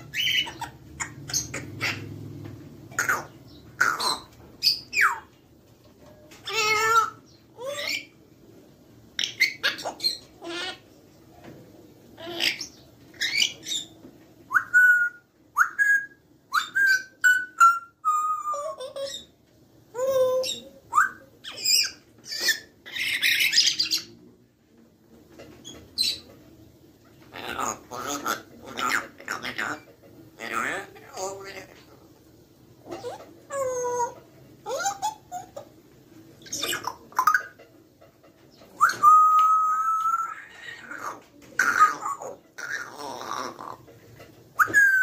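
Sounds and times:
parrot whistles and squawks: 0.0 - 2.2, 2.9 - 5.3, 6.4 - 8.2, 9.2 - 10.8, 12.2 - 19.3, 19.9 - 24.1, 27.3 - 31.9, 32.8 - 35.7, 36.4 - 37.6, 38.6 - 43.8, 44.6 - 45.0.

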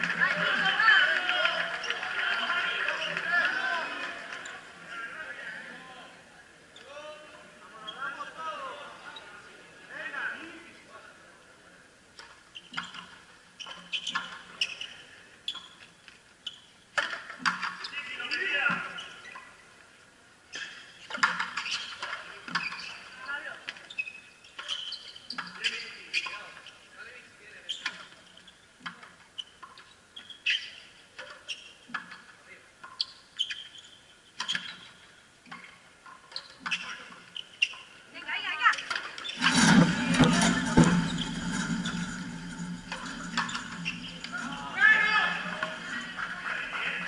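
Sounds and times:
shoes squeaking on court: 12.5 - 16.8, 17.6 - 19.6, 20.5 - 26.8, 27.6 - 38.0, 38.7 - 47.0.

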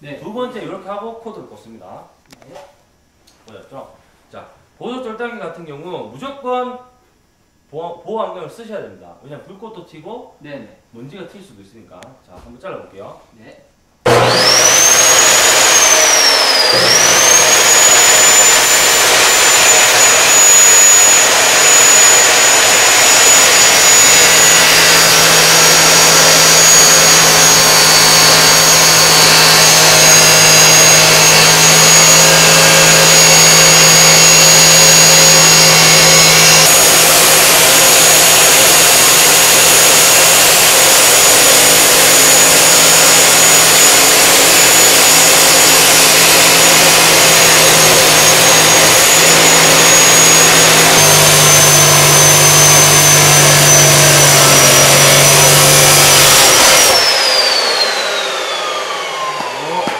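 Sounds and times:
cut-off saw grinding steel: 14.1 - 59.9.

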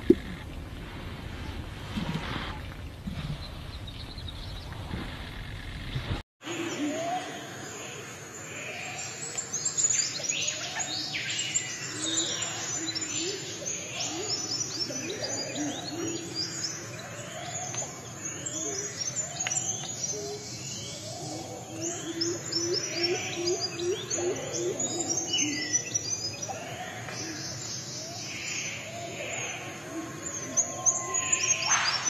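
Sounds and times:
forest background sound: 0.0 - 32.0
birds chirping and whistling: 9.1 - 29.7, 30.3 - 32.0.

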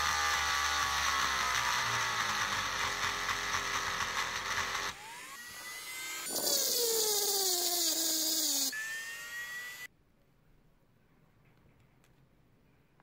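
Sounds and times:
rotary tool grinding metal: 0.0 - 9.9.

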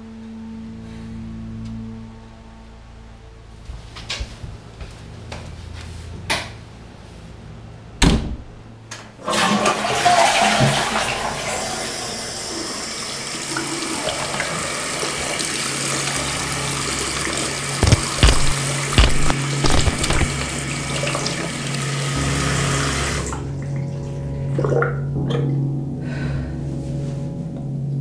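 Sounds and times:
faucet water running into sink: 9.3 - 23.5
knocks and thump: 17.8 - 20.5.

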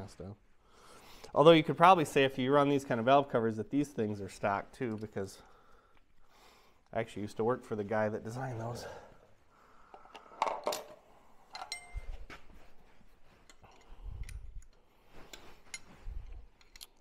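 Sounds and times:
metal tools clinking: 10.4 - 17.0.

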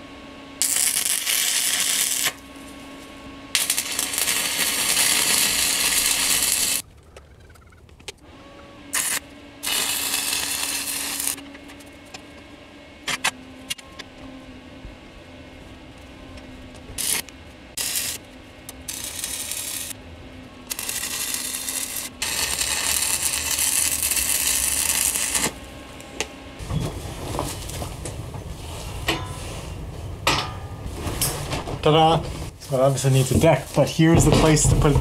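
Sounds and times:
steady low hum: 0.0 - 35.0
arc welding crackling and hissing: 0.6 - 6.8, 8.9 - 12.1, 16.4 - 20.0, 20.6 - 29.0, 31.8 - 35.0.

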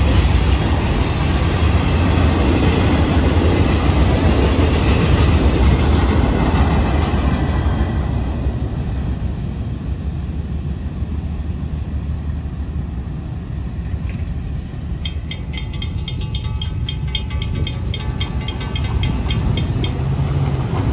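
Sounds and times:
freight train rumble: 0.0 - 20.9
crossing warning bell ringing: 14.9 - 20.9.

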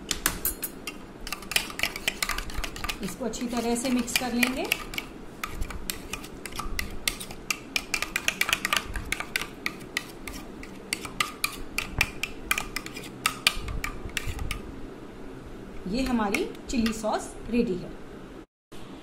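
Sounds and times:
spoon scraping plastic bowl: 0.4 - 14.6.

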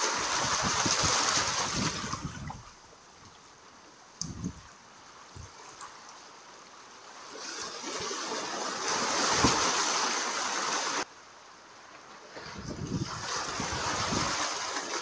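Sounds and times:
waves washing over rocks: 0.0 - 2.8, 6.9 - 11.1, 12.1 - 15.0.

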